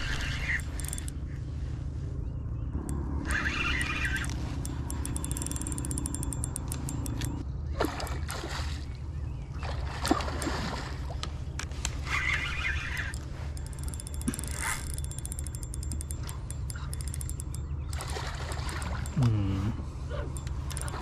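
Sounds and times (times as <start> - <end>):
low rumble: 0.0 - 5.0
fishing reel clicks: 0.1 - 1.2, 2.8 - 7.4, 12.0 - 19.4, 20.4 - 21.0.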